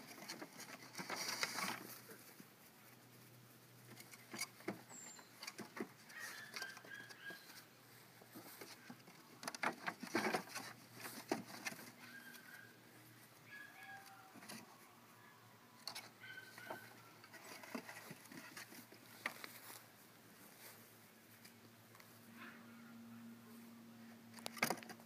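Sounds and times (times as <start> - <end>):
light taps and scratching: 0.0 - 12.7, 15.8 - 19.8
young animals whimpering: 6.1 - 7.7, 12.0 - 12.8, 13.5 - 15.4.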